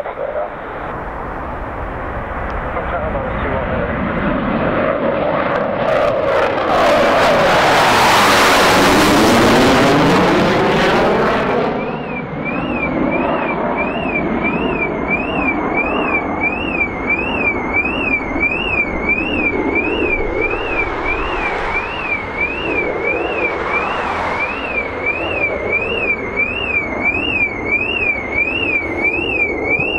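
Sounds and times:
jet engines passing overhead: 0.0 - 29.9
electronic alarm warbling: 7.7 - 29.9.

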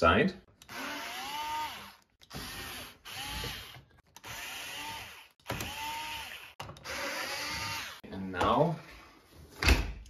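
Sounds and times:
cordless drill whining: 0.6 - 8.0.

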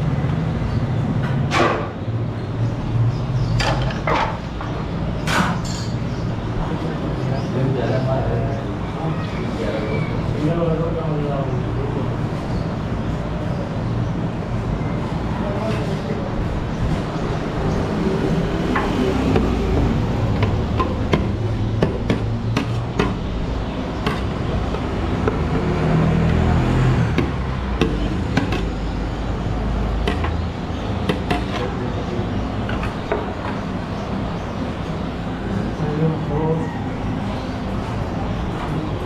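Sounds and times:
traffic rumble: 0.0 - 39.0
sharp knocks and clicks: 18.7 - 23.3, 24.0 - 26.4, 27.1 - 28.9, 29.9 - 31.7.

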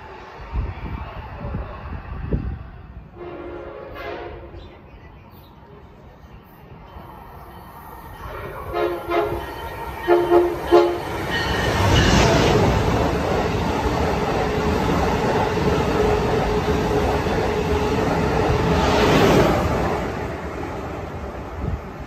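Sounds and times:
train horn blasts: 3.2 - 4.6, 8.6 - 11.2
train rushing past: 6.4 - 22.0.

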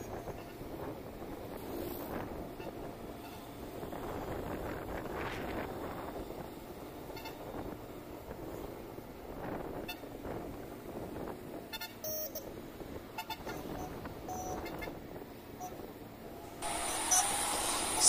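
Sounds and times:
road noise: 0.0 - 18.0
vehicle horn honk: 13.2 - 15.0
scooter engine: 16.6 - 18.0.

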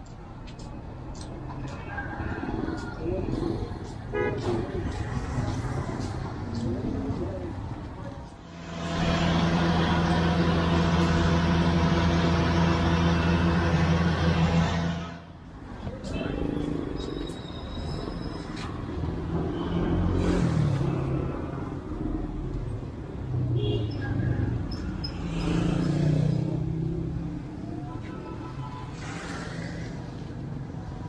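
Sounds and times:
motorbikes and cars passing: 1.1 - 31.0.

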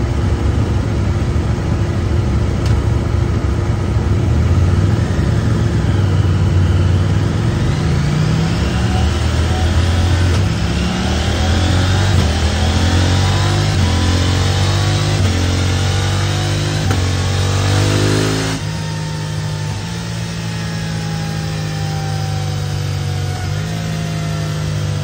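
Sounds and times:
motorcycle engine revving: 4.0 - 25.0
wheel driving dyno drum: 5.8 - 18.8.

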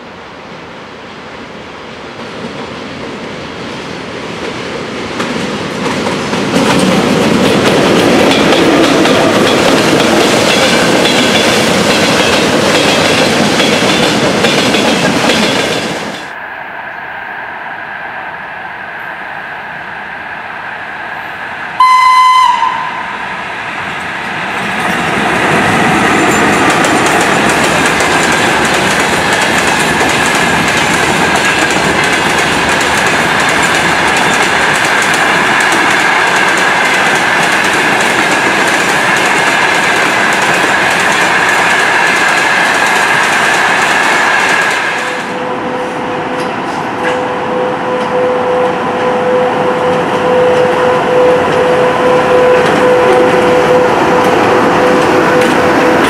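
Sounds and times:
electric locomotive hum: 0.0 - 56.0
freight train rumbling past: 0.0 - 56.0
locomotive horn blast: 21.8 - 23.2, 45.1 - 56.0.

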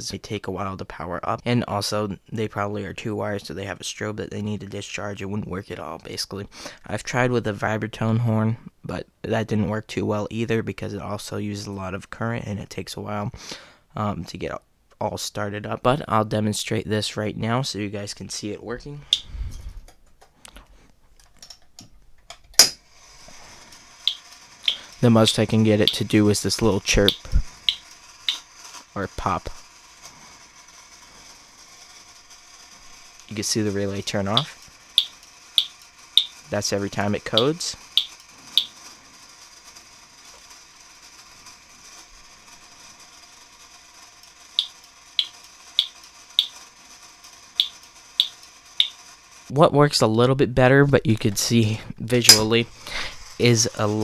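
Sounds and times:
faint steady mechanical whir: 0.0 - 54.0
pull station mechanical clicks: 23.6 - 28.8, 30.0 - 49.2.

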